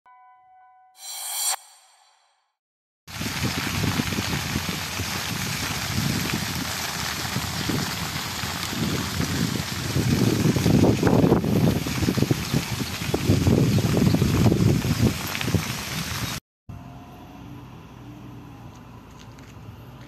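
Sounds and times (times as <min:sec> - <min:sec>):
wind buffeting microphone: 0:03.2 - 0:16.4.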